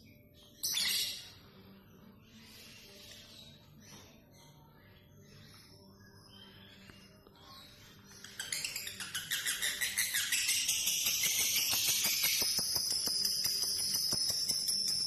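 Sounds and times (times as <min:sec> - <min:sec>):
bird chirping: 0:00.0 - 0:15.0
fast bird twittering chatter: 0:06.4 - 0:15.0.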